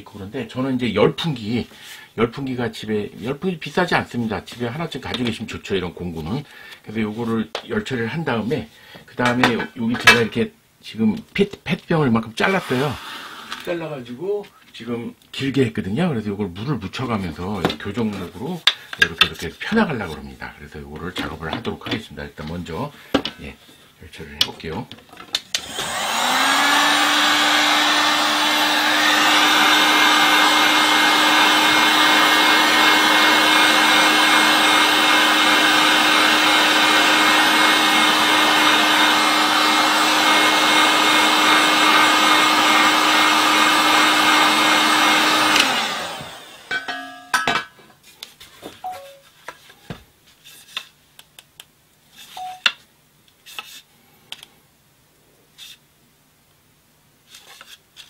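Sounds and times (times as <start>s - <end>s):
heat gun fan humming: 25.5s - 47.0s.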